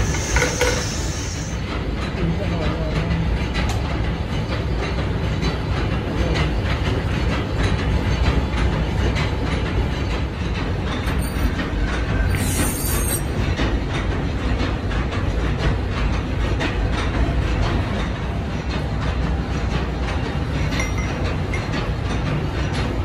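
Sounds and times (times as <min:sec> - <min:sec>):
metal lathe running: 0:00.0 - 0:01.8, 0:09.7 - 0:13.8.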